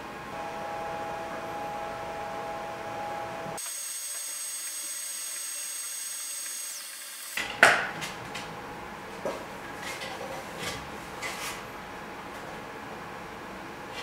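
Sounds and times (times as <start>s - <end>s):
high tones: 0.0s - 3.9s
steady mechanical hum: 0.0s - 14.0s.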